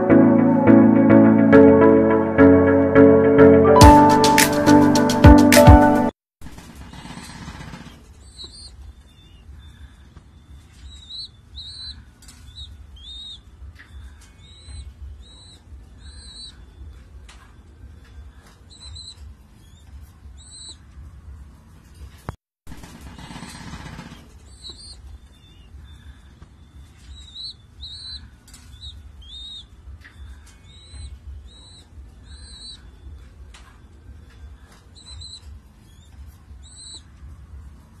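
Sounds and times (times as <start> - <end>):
pigeon squabs squeaking: 8.2 - 9.4, 10.8 - 13.4, 14.3 - 16.6, 18.6 - 20.8, 24.5 - 26.1, 27.0 - 33.0, 34.6 - 37.1.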